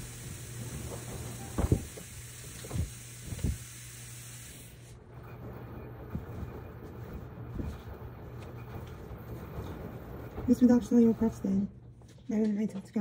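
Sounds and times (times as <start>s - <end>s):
hiss: 0.0s - 5.0s.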